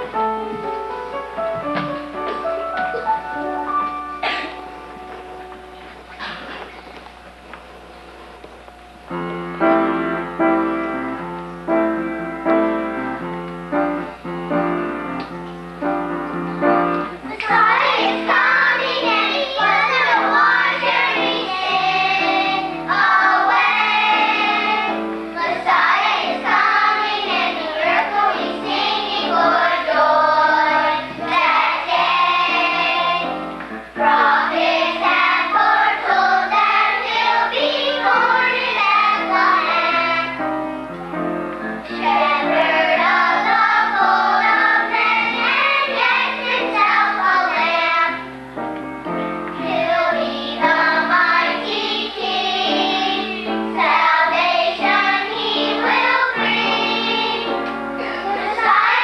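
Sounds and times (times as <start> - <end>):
piano: 0.0 - 59.0
children's choir singing: 16.0 - 40.6, 41.8 - 48.4, 49.5 - 59.0.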